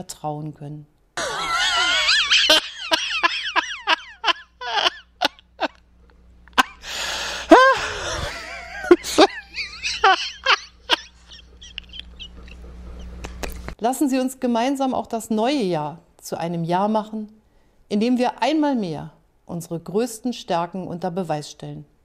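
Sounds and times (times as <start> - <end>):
man laughing hysterically: 1.2 - 5.8, 6.5 - 13.5.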